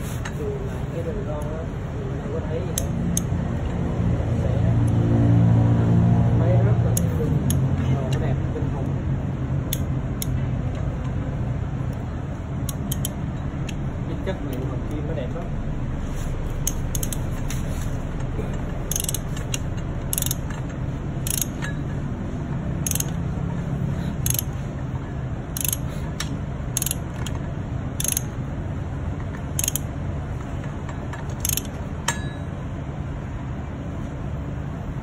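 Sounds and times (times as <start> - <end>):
steady low hum: 0.0 - 35.0
wrench ratchet clicking: 7.0 - 8.2, 9.7 - 10.8, 12.6 - 13.8, 16.6 - 17.5, 18.2 - 22.0, 22.7 - 23.2, 24.1 - 24.6, 25.5 - 28.4, 29.3 - 32.4.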